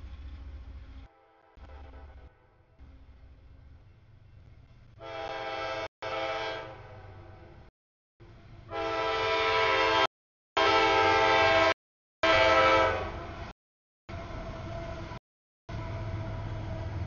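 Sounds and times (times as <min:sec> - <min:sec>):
low engine rumble: 0:00.0 - 0:05.0
locomotive air horn blasts: 0:01.0 - 0:02.8, 0:05.0 - 0:07.6, 0:08.7 - 0:13.5.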